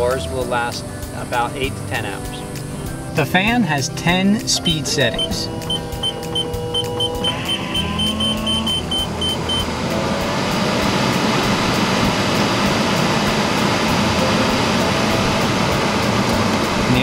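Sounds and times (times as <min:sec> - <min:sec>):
air cooler fans rushing: 0:00.0 - 0:17.0
control panel beeps: 0:05.1 - 0:09.7.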